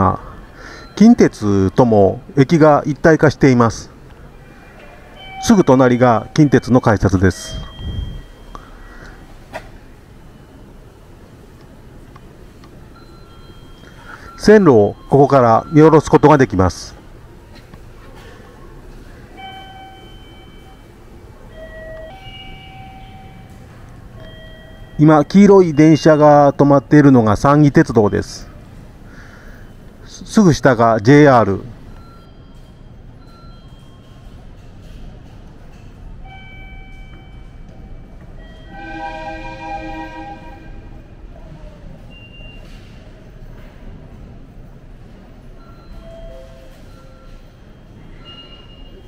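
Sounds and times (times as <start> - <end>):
train rumble: 0.0 - 30.4, 31.7 - 49.0
electronic chime melody: 5.2 - 8.7, 21.5 - 23.6
train horn blast: 38.6 - 41.1.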